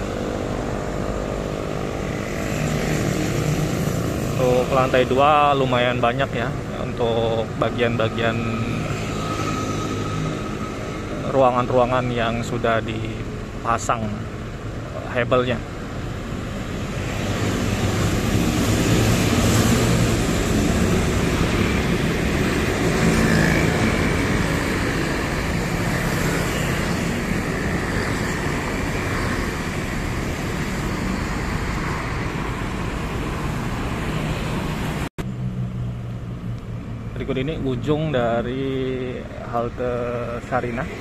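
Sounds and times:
road traffic passing: 0.0s - 41.0s.

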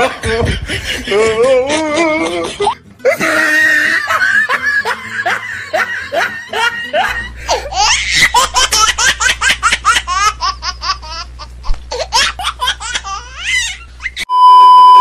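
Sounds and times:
high-pitched laughter: 0.0s - 14.3s
test-tone beep: 14.3s - 15.0s.

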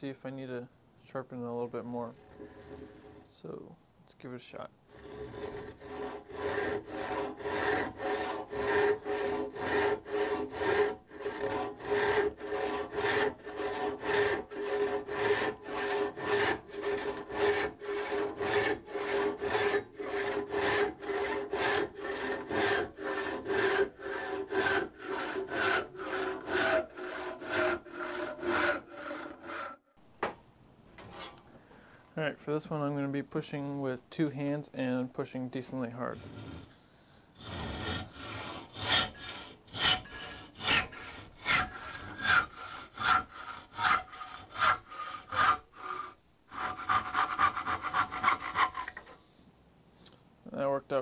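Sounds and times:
hand saw cutting wood: 1.8s - 3.5s, 4.9s - 29.8s, 36.0s - 36.8s, 37.4s - 49.2s.

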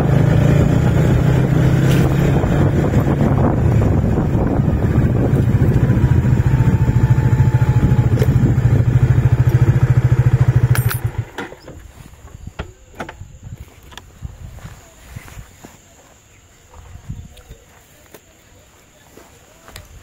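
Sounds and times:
motorcycle engine running: 0.0s - 11.7s.

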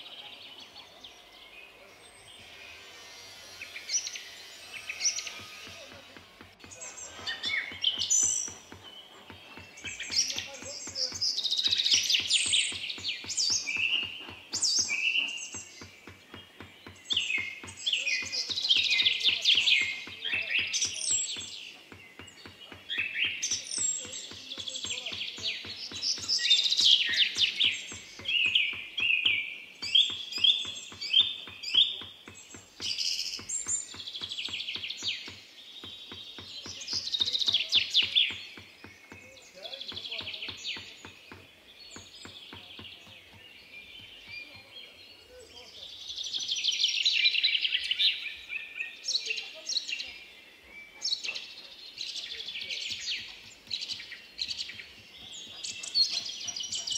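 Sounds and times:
bird singing: 0.0s - 56.9s
small hammer tapping copper: 7.4s - 44.6s.

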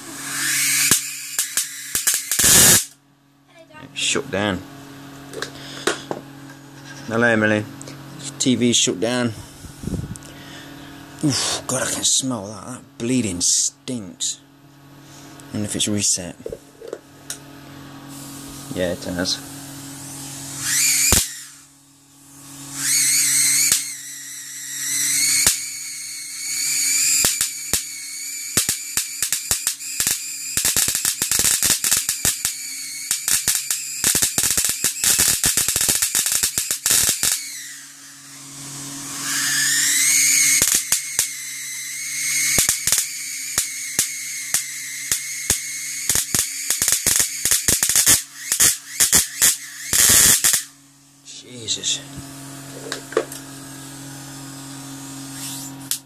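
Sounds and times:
high-voltage arcs snapping: 0.0s - 3.0s, 18.1s - 50.8s, 51.6s - 56.0s
high-pitched television whine: 0.0s - 4.6s, 18.7s - 21.7s, 22.3s - 35.9s, 36.5s - 53.4s
low hum: 3.0s - 20.8s.

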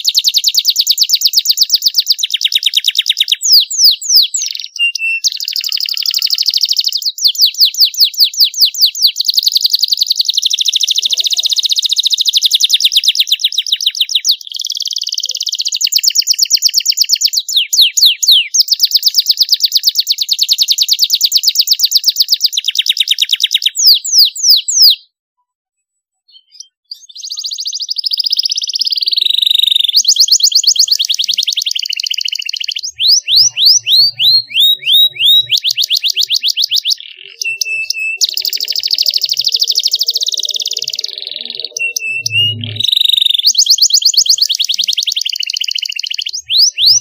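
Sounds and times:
canary singing trills: 0.0s - 25.2s, 26.3s - 47.0s.

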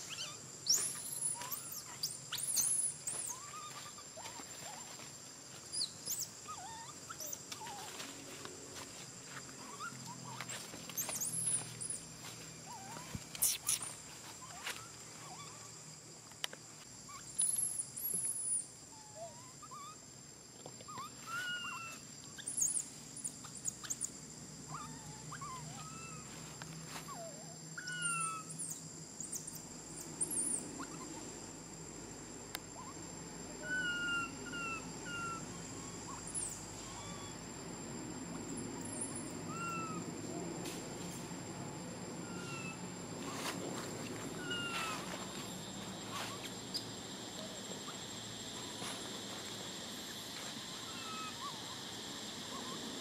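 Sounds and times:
faint bird chirps: 0.0s - 5.0s
high insect drone: 0.0s - 53.0s
baby monkey whimpering squeaks: 0.1s - 4.4s, 12.7s - 14.6s, 20.9s - 22.8s, 24.7s - 26.2s, 27.1s - 28.8s, 33.6s - 37.4s, 39.0s - 40.0s, 42.3s - 42.8s, 44.4s - 45.0s, 50.9s - 51.6s.

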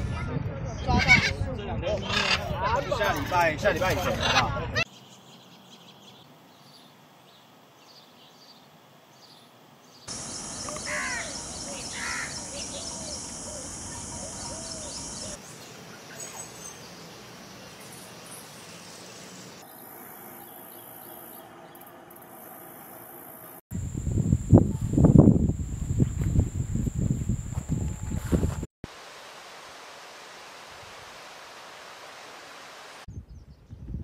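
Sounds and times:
bird calls: 9.2s - 18.5s
high-pitched insect drone: 10.1s - 15.4s, 22.4s - 28.6s.

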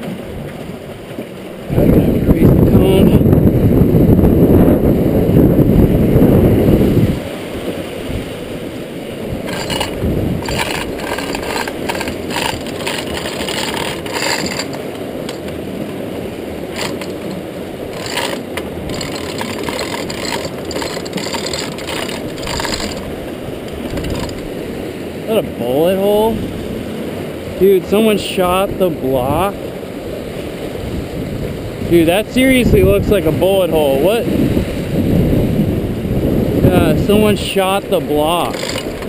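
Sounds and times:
rushing river water: 0.0s - 39.0s
wind on microphone: 0.0s - 39.0s
chain rattling through hoist: 9.5s - 15.4s, 16.7s - 23.1s, 23.8s - 24.5s, 38.4s - 39.0s.

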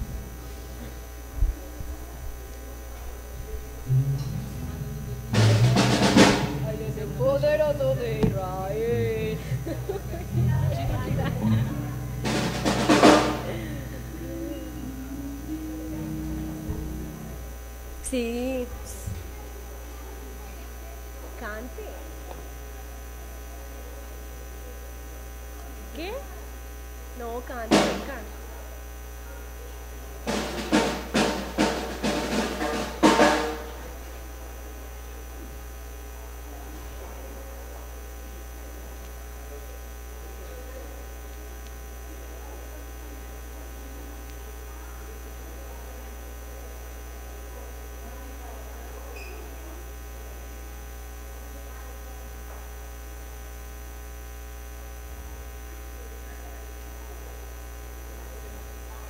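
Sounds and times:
electrical mains hum: 0.0s - 59.0s
drum kit fill: 3.8s - 17.6s, 27.7s - 28.3s, 30.2s - 34.0s.

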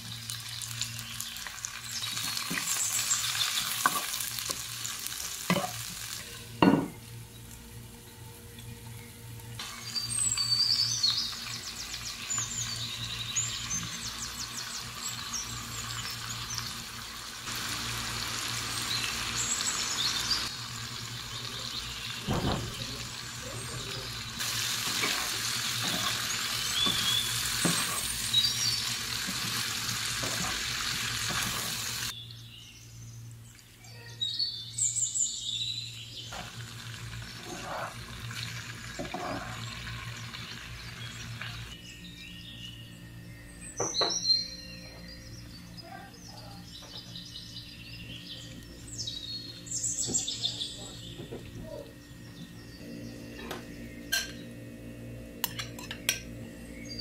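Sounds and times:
food sizzling in pan: 0.0s - 8.0s, 9.6s - 32.1s, 36.2s - 41.8s.

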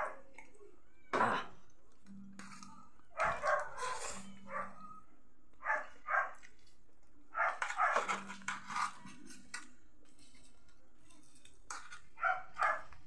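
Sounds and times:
dog barking: 3.2s - 4.9s, 5.6s - 6.4s, 7.4s - 8.1s, 12.2s - 12.9s.

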